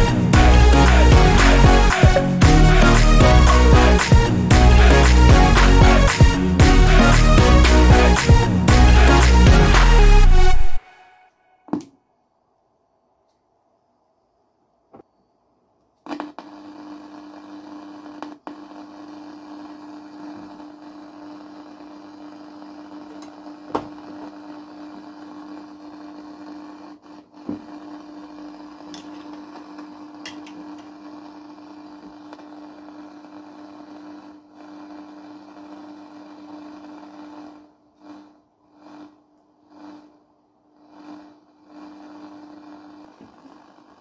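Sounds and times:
radio static hiss: 0:00.0 - 0:05.1, 0:16.1 - 0:38.3, 0:40.8 - 0:44.0
low hum: 0:00.0 - 0:11.6.

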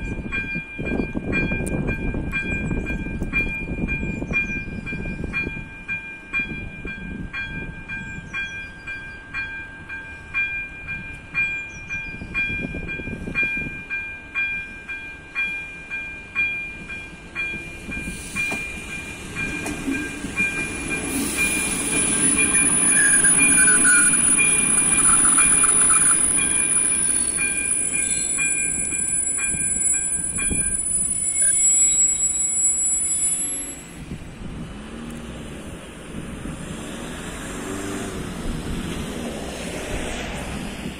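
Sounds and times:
crossing warning bell ringing: 0:00.0 - 0:34.2
diesel train engine and wheels: 0:00.0 - 0:40.9
high wheel squeal: 0:19.9 - 0:34.1.

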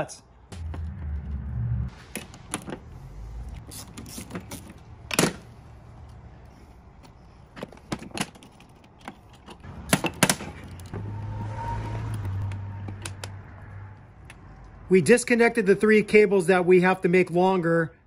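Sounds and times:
steady low hum: 0:00.4 - 0:02.1.

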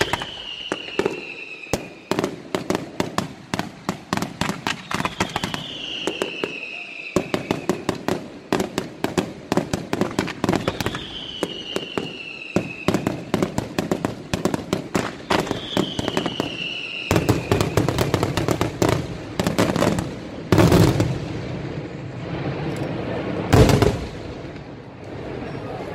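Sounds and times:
high whistle sliding down: 0:00.0 - 0:02.1, 0:04.8 - 0:07.8, 0:10.6 - 0:13.0, 0:15.2 - 0:17.8
fireworks bangs: 0:00.0 - 0:25.8.

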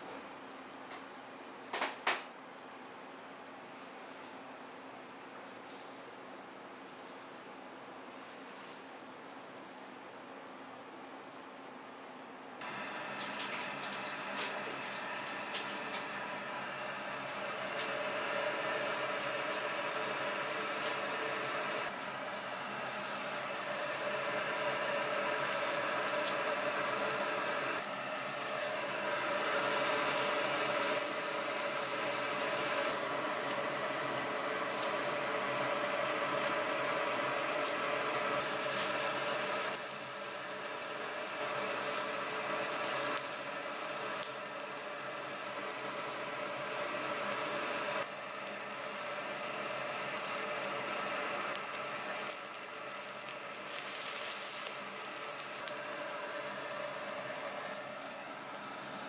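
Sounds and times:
ventilation fan humming: 0:00.0 - 0:59.0
meat sizzling on grill: 0:12.6 - 0:59.0.

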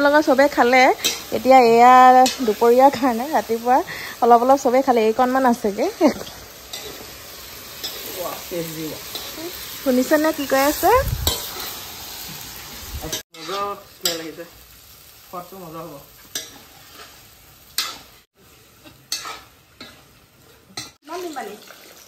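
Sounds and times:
food sizzling in a wok: 0:00.0 - 0:22.0
metal spoon scraping a wok: 0:06.1 - 0:08.2, 0:09.0 - 0:11.8, 0:13.0 - 0:14.4, 0:18.8 - 0:21.0.

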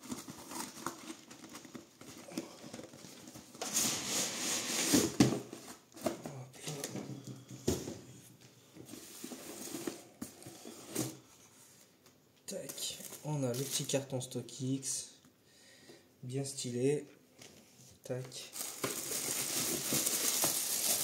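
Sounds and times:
cardboard box scraping out: 0:03.6 - 0:05.2.

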